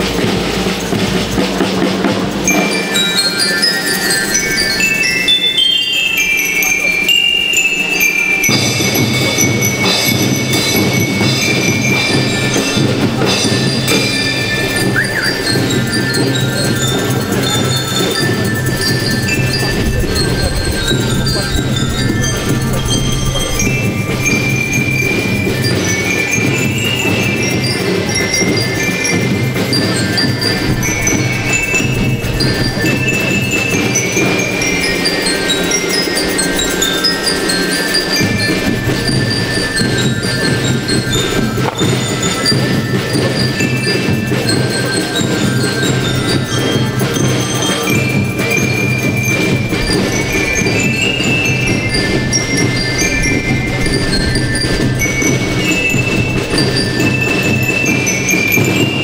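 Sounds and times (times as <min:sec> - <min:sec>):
drums beating: 0:00.0 - 0:07.2, 0:07.8 - 0:59.0
bell lyres ringing: 0:00.0 - 0:59.0.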